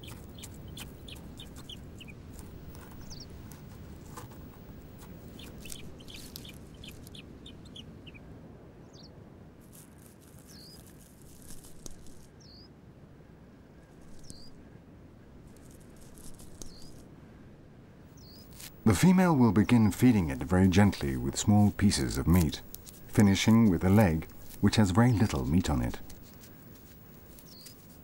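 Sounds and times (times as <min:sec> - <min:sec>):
buzzard chick begging chirps: 0:00.0 - 0:03.7, 0:04.3 - 0:08.2
rustling at nest: 0:00.0 - 0:08.3, 0:09.0 - 0:12.7, 0:13.8 - 0:14.6, 0:15.3 - 0:17.1, 0:18.1 - 0:28.0
steady background hiss: 0:00.0 - 0:28.0.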